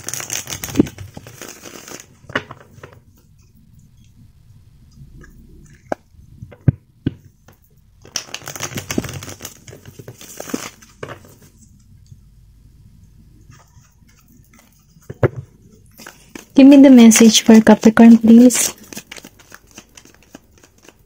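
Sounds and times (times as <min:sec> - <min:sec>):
cards being riffle-shuffled: 0:08.0 - 0:11.6, 0:13.4 - 0:16.6, 0:17.2 - 0:21.0.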